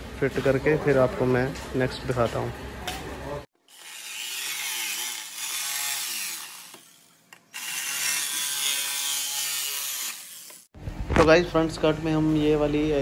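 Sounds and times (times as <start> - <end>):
electric jigsaw cutting: 3.6 - 10.7.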